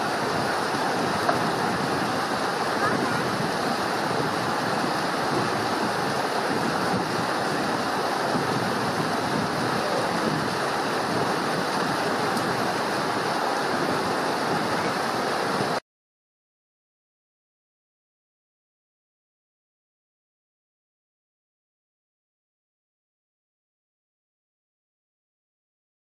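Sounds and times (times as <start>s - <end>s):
stream rushing over rocks: 0.0s - 15.8s.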